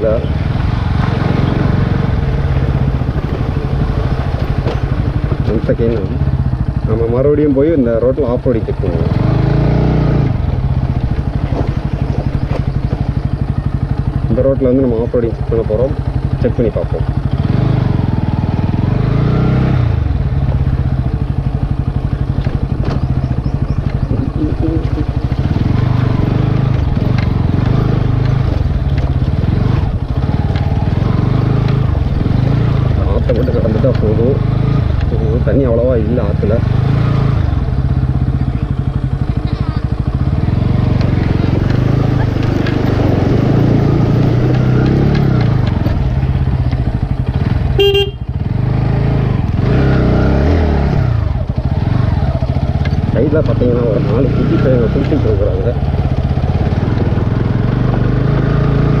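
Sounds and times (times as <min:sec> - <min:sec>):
motorcycle engine running: 0:00.0 - 0:59.0
short horn beep: 0:47.8 - 0:48.3.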